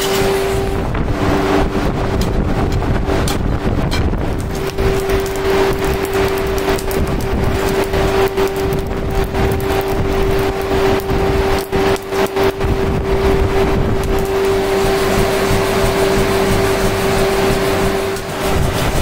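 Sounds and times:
air blower humming: 0:00.0 - 0:19.0
rush of blown coal fire: 0:00.0 - 0:19.0.

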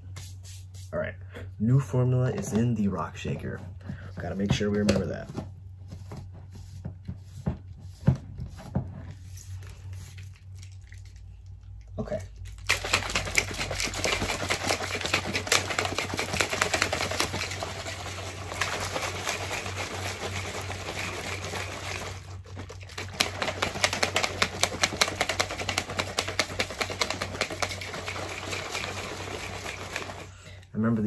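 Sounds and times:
shaker cups rattling liquid: 0:07.9 - 0:30.6.

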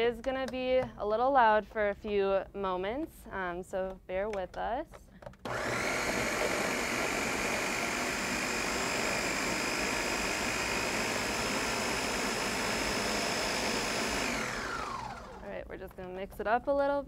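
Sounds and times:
blender motor whining: 0:05.4 - 0:15.5.

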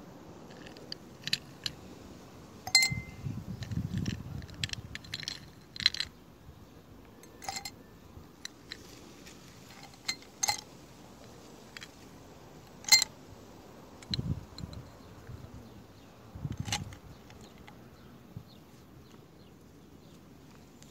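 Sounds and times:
ice clinking in glass: 0:02.7 - 0:03.2, 0:07.2 - 0:07.8.

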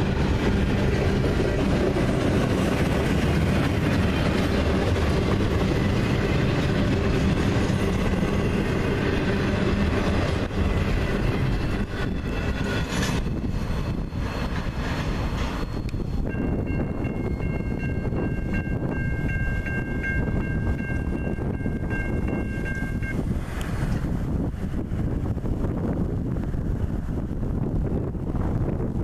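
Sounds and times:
freight train wheels on rails: 0:00.0 - 0:29.0.

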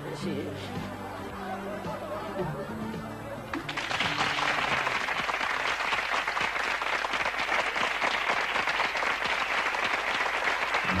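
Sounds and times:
audience applauding: 0:03.5 - 0:11.0.

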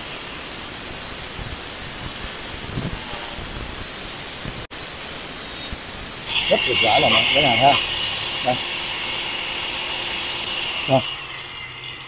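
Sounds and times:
angle grinder cutting metal: 0:05.6 - 0:12.0.

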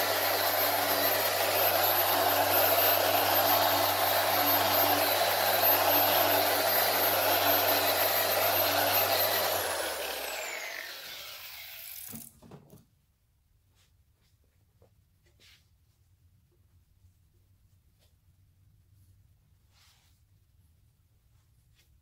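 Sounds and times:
orbital polisher running: 0:00.0 - 0:12.2.

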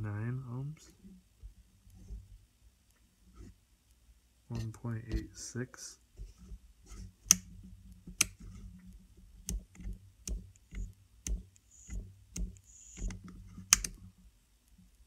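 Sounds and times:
faint low hum: 0:00.0 - 0:15.0
soft scraping hisses: 0:01.8 - 0:03.6, 0:04.5 - 0:07.3, 0:12.6 - 0:13.8
metal hardware clicks and taps: 0:08.1 - 0:08.4, 0:09.4 - 0:14.0.

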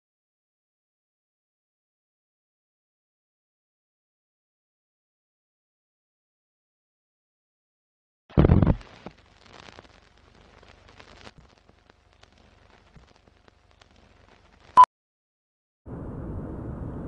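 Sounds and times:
old film crackling and ticking: 0:08.3 - 0:14.8.

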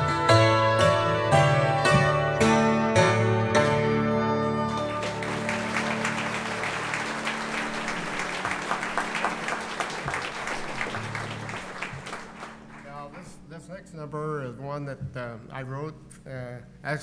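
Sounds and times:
audience applauding: 0:04.6 - 0:13.4.

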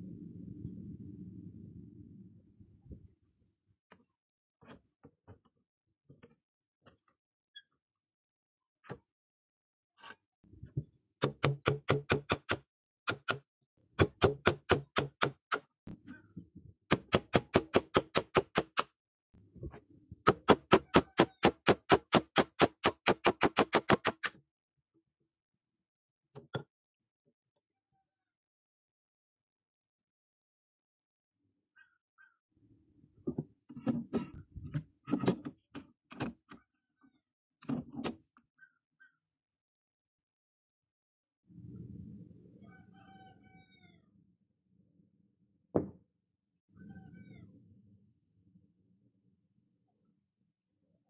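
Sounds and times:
hammer striking steel punch: 0:14.0 - 0:15.6, 0:16.9 - 0:18.9.

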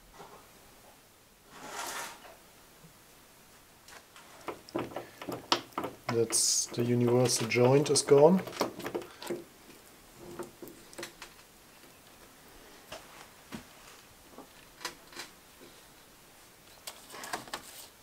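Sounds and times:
metal joint clicking and knocking: 0:04.4 - 0:09.4.

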